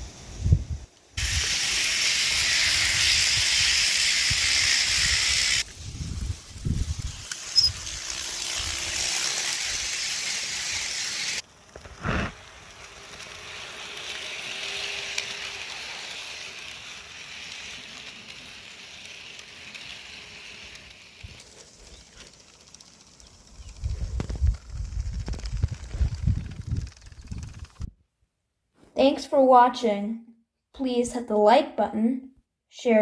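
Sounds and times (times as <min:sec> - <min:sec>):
model train wheels hissing: 0:00.0 - 0:27.9.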